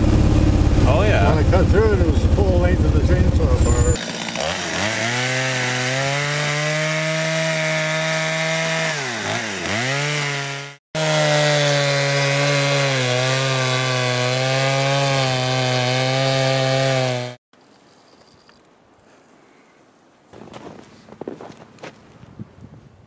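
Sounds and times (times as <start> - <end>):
chainsaw cutting ice: 3.1 - 17.4.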